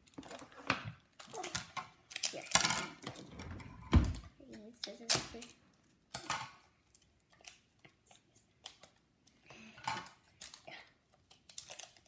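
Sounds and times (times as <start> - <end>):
plastic wrapper crinkling: 10.0 - 12.0.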